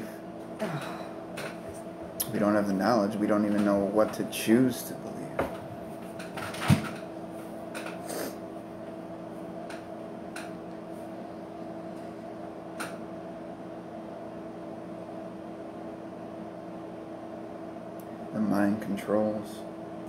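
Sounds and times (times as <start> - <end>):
fan humming: 0.0 - 20.0.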